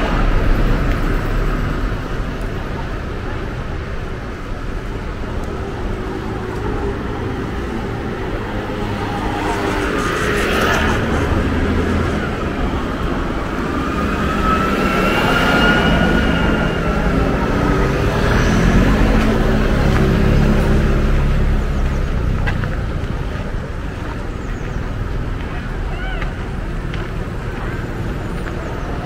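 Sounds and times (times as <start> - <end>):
motor vehicles passing: 0.0 - 29.0.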